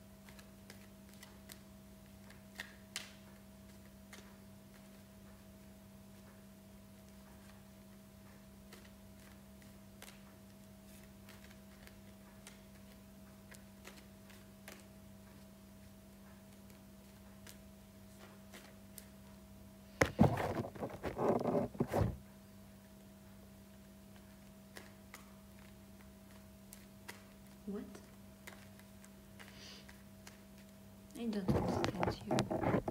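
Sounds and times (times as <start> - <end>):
cards being shuffled: 0.2 - 5.1, 8.6 - 15.4, 16.5 - 19.2, 20.0 - 22.2, 24.1 - 30.8, 31.4 - 32.9
steady low hum: 3.4 - 32.9.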